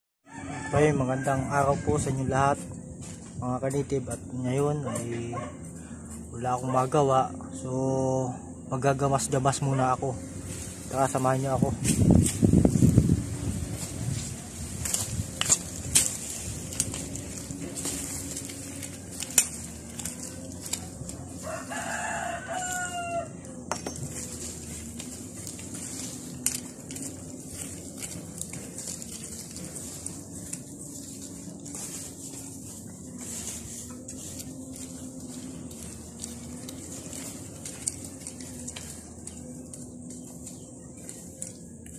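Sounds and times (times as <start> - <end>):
rooster crowing: 0.2 - 2.6, 16.7 - 25.9
weeding rustling and scraping soil: 0.2 - 41.9.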